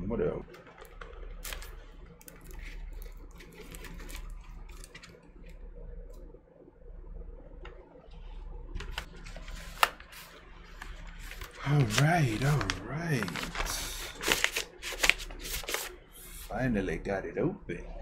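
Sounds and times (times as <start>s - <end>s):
faint low hum: 0.0s - 18.0s
paper rustling and crinkling: 0.6s - 5.6s, 8.8s - 16.5s.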